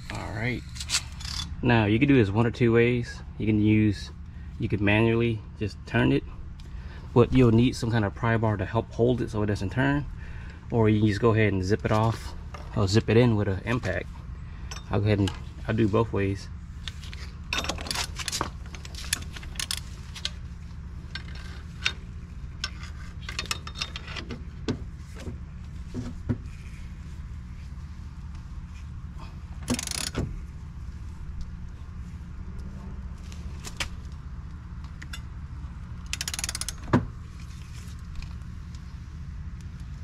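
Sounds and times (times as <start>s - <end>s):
steady low hum: 0.0s - 40.0s
socket ratchet clicking: 29.6s - 30.2s, 36.0s - 36.9s.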